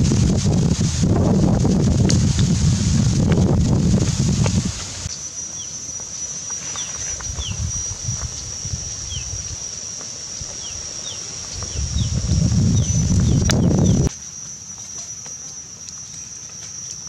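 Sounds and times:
high insect drone: 0:00.0 - 0:17.0
pan boiling on wood fire: 0:00.0 - 0:17.0
bird chirping: 0:06.7 - 0:07.7, 0:10.6 - 0:14.1.

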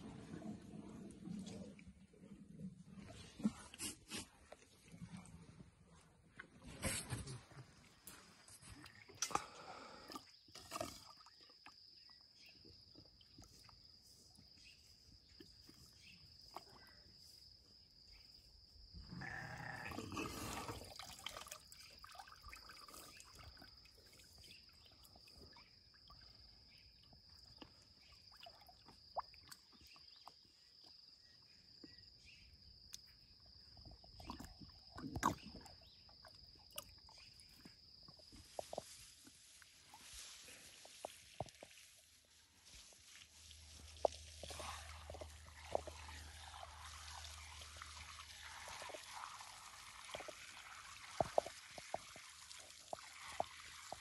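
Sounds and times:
elephant drinking water splashing: 0:00.0 - 0:12.1, 0:20.0 - 0:30.2, 0:34.0 - 0:54.0.

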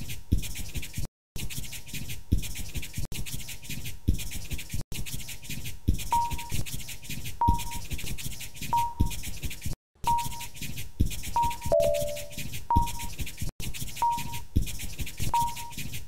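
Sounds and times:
pen scratching on paper: 0:00.4 - 0:16.0
short high beeps: 0:11.6 - 0:12.4.

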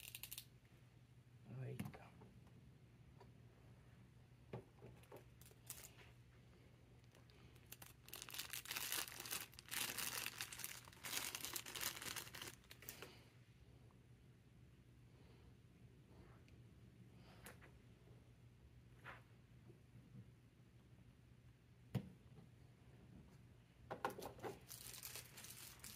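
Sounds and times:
plastic bag crinkling: 0:05.2 - 0:06.1, 0:07.0 - 0:13.1, 0:24.5 - 0:25.9.

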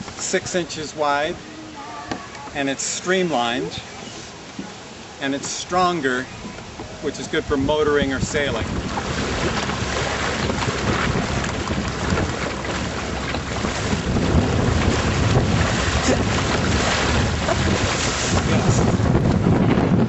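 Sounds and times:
water splashing along hull: 0:00.0 - 0:20.0
wind buffeting microphone: 0:06.2 - 0:20.0.

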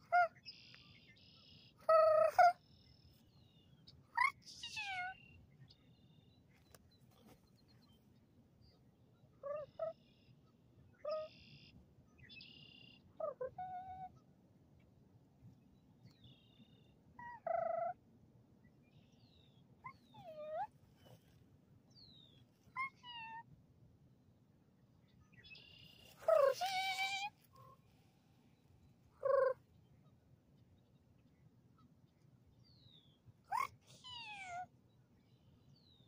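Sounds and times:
bird-like calls and squawks: 0:00.0 - 0:02.6, 0:04.1 - 0:05.3, 0:09.4 - 0:11.7, 0:12.4 - 0:14.2, 0:17.2 - 0:18.0, 0:22.7 - 0:23.4, 0:25.5 - 0:27.8, 0:29.2 - 0:29.6, 0:33.5 - 0:34.7.

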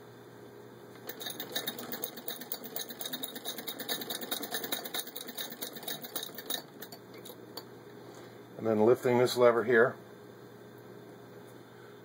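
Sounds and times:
hand-cranked sewing machine clicking: 0:01.0 - 0:07.0.

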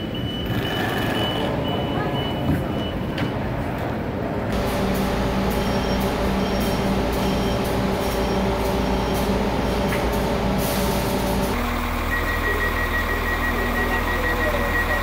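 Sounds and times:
door-closing warning beeps: 0:00.0 - 0:03.4, 0:05.5 - 0:10.0, 0:12.0 - 0:15.0
train hum: 0:01.1 - 0:15.0
steady beeping tone: 0:05.0 - 0:09.9, 0:11.6 - 0:15.0.

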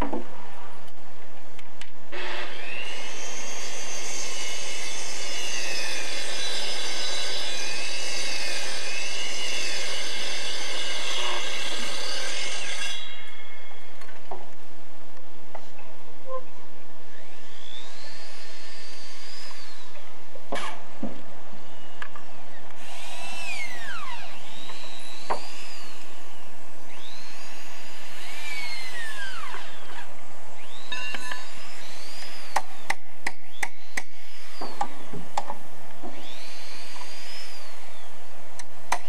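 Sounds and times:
power tool cutting wood: 0:02.1 - 0:13.5, 0:17.1 - 0:20.0, 0:22.8 - 0:38.1.

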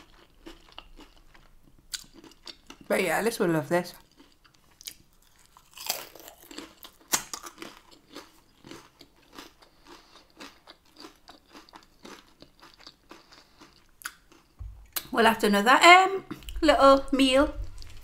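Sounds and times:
crunchy chewing: 0:00.0 - 0:02.9, 0:04.0 - 0:15.0
crunching bite into fried tortilla: 0:04.2 - 0:14.3.

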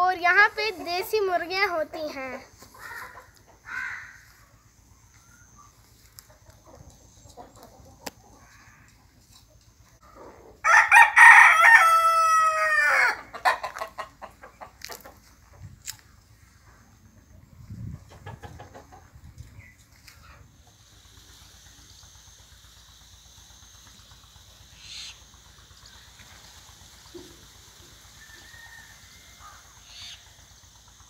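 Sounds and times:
rooster crowing: 0:10.6 - 0:13.8, 0:28.1 - 0:30.2.

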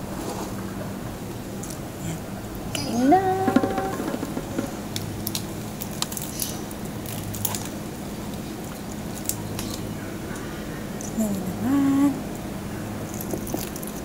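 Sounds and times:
person humming: 0:02.8 - 0:04.2, 0:11.1 - 0:12.2
crispy skin crackling as torn: 0:04.5 - 0:09.8.

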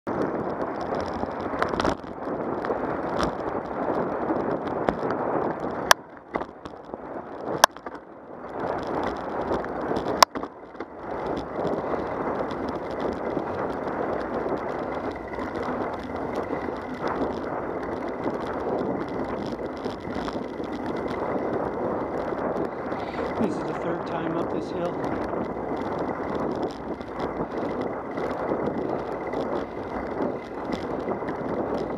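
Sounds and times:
tyres rolling on asphalt: 0:00.1 - 0:31.9
wind on microphone: 0:00.1 - 0:31.9.

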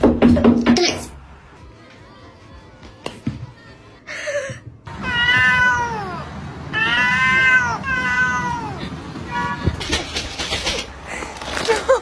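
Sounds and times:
cat meowing: 0:04.9 - 0:09.7.

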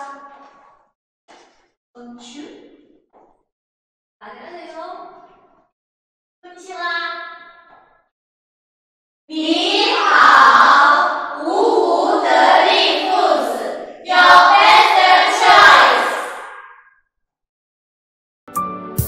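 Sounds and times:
women chanting in unison: 0:09.3 - 0:16.6.

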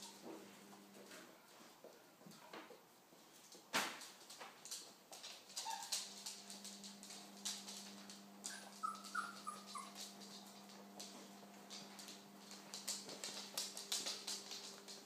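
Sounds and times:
paws and claws on hard floor: 0:00.0 - 0:15.0
puppy whimpering squeaks: 0:05.6 - 0:06.0, 0:08.4 - 0:10.1.

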